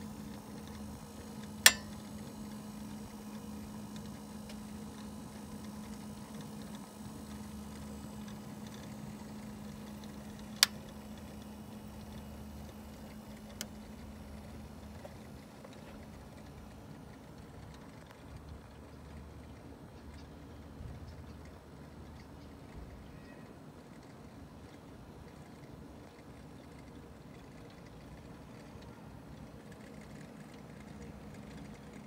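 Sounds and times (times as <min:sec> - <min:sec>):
sharp clicks: 0:00.0 - 0:20.4.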